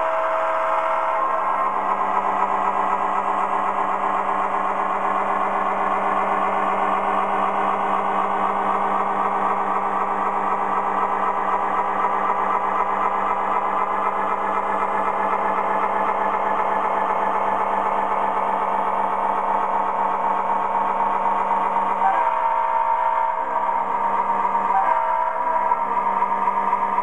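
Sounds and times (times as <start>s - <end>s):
diesel engine drone: 0.0s - 27.0s
freight cars rattling on track: 0.0s - 27.0s
train horn blast: 22.0s - 23.8s, 24.6s - 25.8s.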